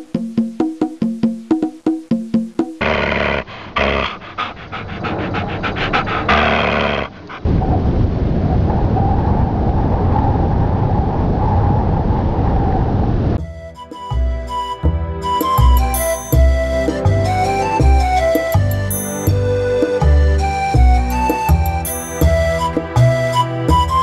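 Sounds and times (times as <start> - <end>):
wood-block music beat: 0.0 - 2.8, 15.3 - 24.0
dog-like animal sounds: 2.8 - 7.5.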